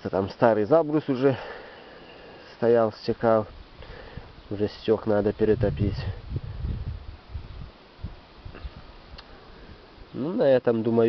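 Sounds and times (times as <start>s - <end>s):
faint hiss: 0.0s - 11.0s
wind buffeting microphone: 3.8s - 9.8s.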